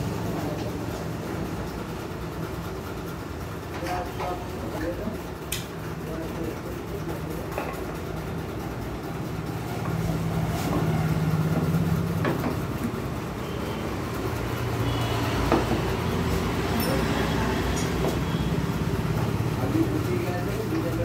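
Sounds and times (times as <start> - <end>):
engine running: 6.1 - 21.0.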